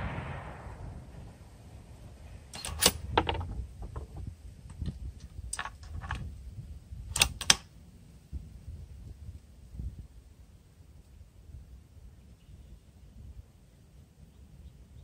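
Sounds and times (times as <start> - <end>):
rifle bolt clicking: 2.6 - 3.0, 7.2 - 7.6.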